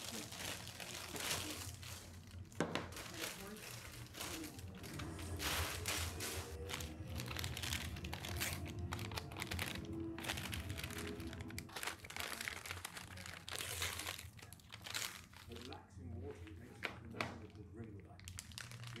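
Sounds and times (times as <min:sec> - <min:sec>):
background music: 0:00.0 - 0:13.6
paper and plastic bags crinkling: 0:00.0 - 0:19.0.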